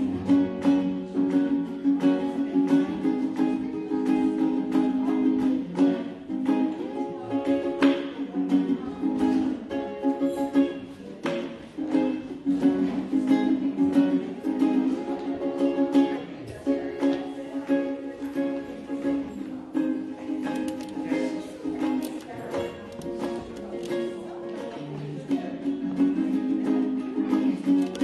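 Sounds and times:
ukulele strumming chords: 0:00.0 - 0:28.0.

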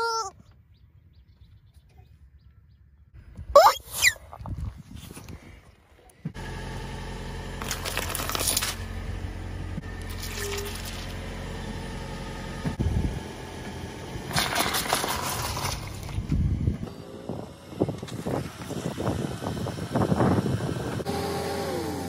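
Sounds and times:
low engine hum: 0:05.3 - 0:22.0.

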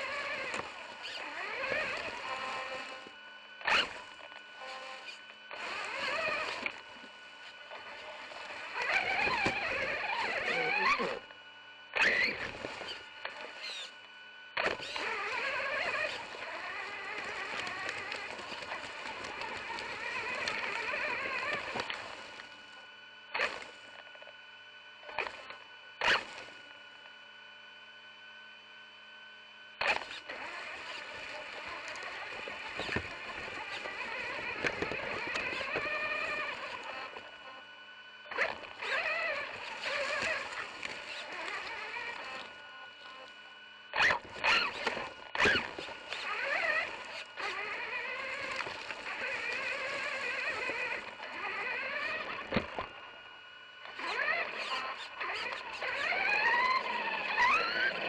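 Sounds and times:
rc truck electric motor whine: 0:00.0 - 0:58.0.

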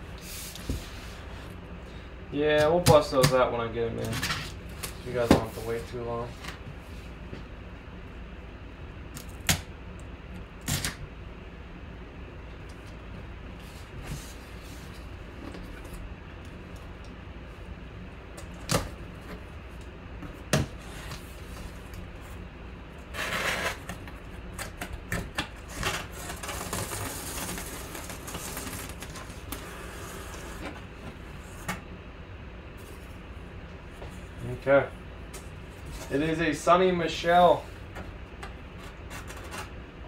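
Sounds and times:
cardboard rustling and scraping: 0:04.0 - 0:07.1, 0:25.6 - 0:31.7.

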